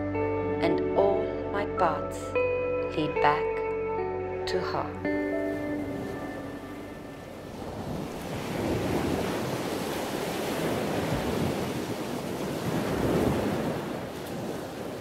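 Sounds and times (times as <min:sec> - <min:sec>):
surf breaking against rocks: 0:07.6 - 0:15.0.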